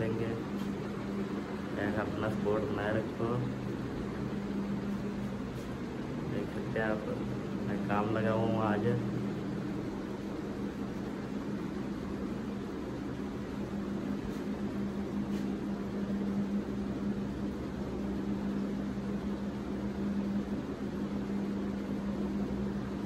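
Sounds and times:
steady mechanical hum: 0.0s - 23.0s.

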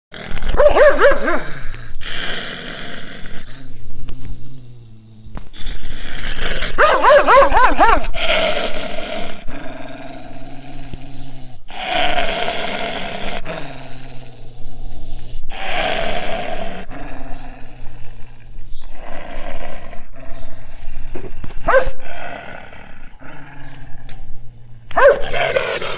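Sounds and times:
dog growling and snarling: 0.1s - 25.9s.

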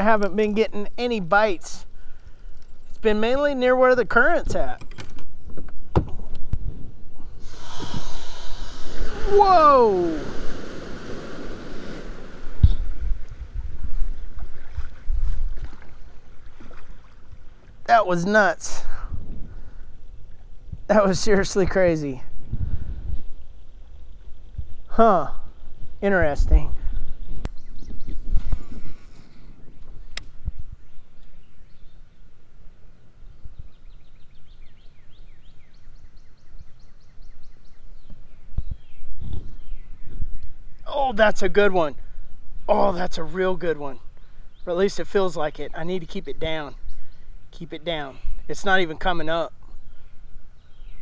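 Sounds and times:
songbird singing: 0.0s - 51.0s
faint water splashing: 7.2s - 20.6s
water surging around boat: 7.4s - 18.0s.

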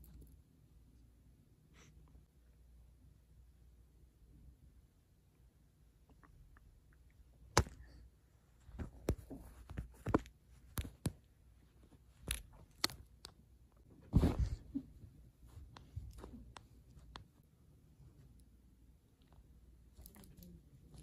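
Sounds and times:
rustling scuffle on bedspread: 14.1s - 14.7s.

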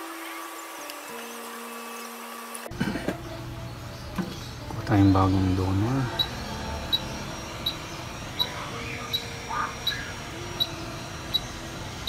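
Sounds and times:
faint steady background tones: 2.6s - 12.0s.

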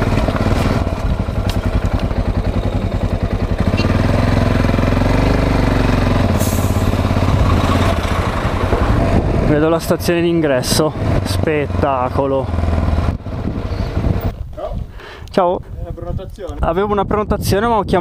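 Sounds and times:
truck diesel engine passing: 0.0s - 14.3s
motorcycle engine running: 0.0s - 14.4s.

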